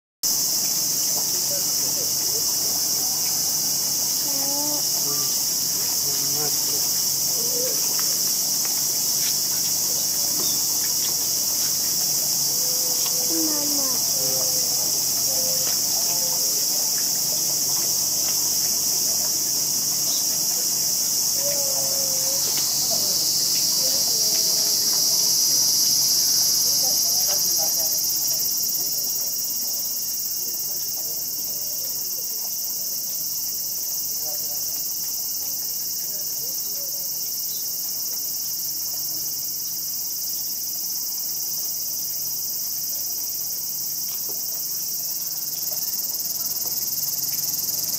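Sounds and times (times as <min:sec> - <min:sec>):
insects buzzing: 0:00.2 - 0:47.9.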